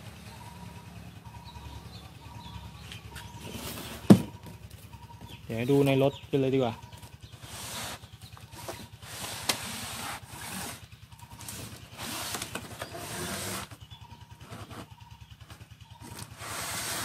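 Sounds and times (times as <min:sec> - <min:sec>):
low pulsing hum: 0:00.0 - 0:17.0
cardboard rustling and scraping: 0:03.2 - 0:04.4, 0:07.5 - 0:10.8, 0:11.4 - 0:13.8, 0:16.0 - 0:17.0.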